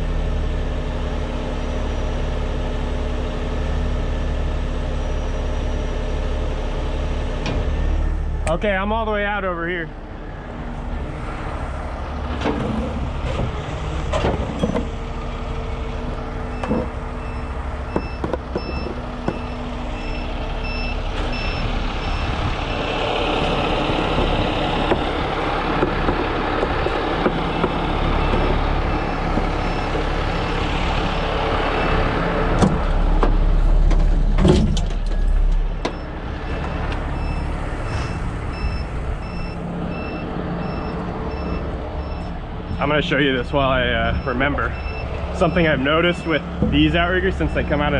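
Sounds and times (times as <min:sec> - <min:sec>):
truck engine running under load: 0:00.0 - 0:47.9
metal knocks: 0:17.9 - 0:19.6
warning beeper beeping: 0:35.2 - 0:47.9.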